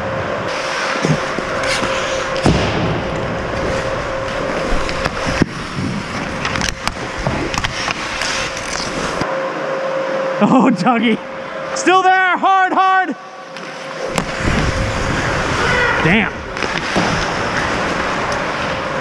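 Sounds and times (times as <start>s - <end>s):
steady hum: 0.0s - 19.0s
skate blades scraping ice: 0.5s - 2.5s, 3.4s - 9.3s
sticks and puck clacking: 0.9s - 9.3s.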